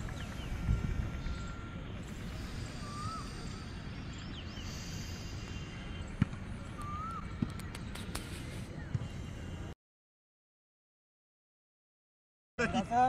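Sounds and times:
bird chirping: 0.0s - 9.7s.

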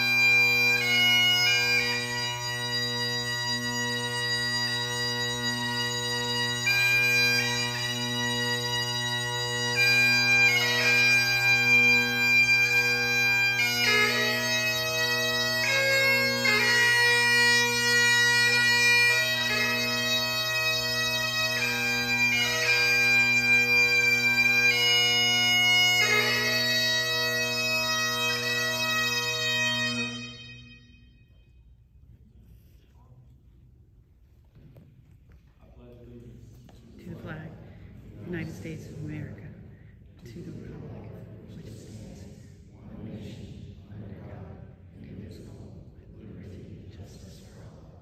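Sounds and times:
bagpipe drones: 0.0s - 31.5s, 37.0s - 42.2s
bagpipes playing slow tune: 0.0s - 31.6s, 37.0s - 41.0s.

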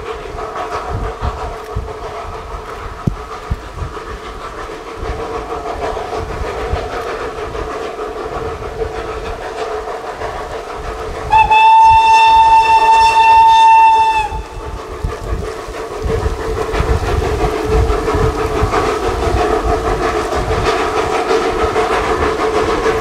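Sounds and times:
steam locomotive running: 0.0s - 23.0s
steam whistle blast: 11.3s - 14.7s.

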